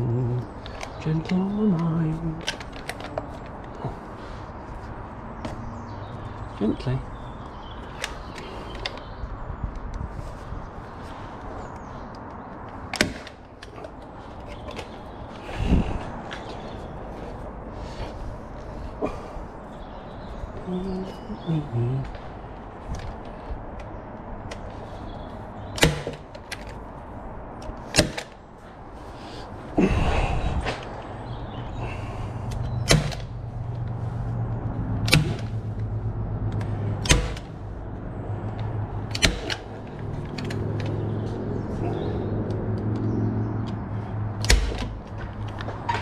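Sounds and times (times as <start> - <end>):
staple gun snapping: 25.8 - 26.7, 35.0 - 35.6, 36.6 - 37.5, 39.1 - 39.7, 44.4 - 44.9.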